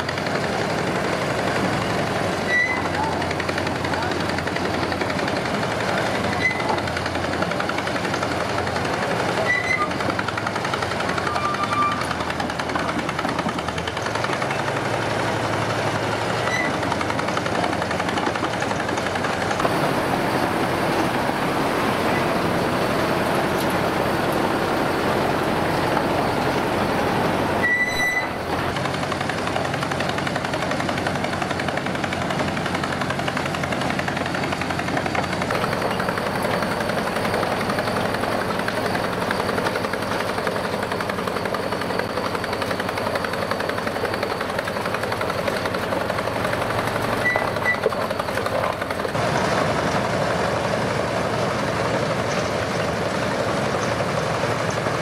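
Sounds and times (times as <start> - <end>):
backhoe tracks clattering: 0.0 - 55.0
short high squeaks: 2.4 - 3.0, 6.2 - 6.8, 9.4 - 10.0, 11.1 - 12.2, 16.4 - 16.9, 21.9 - 28.7, 47.0 - 48.0.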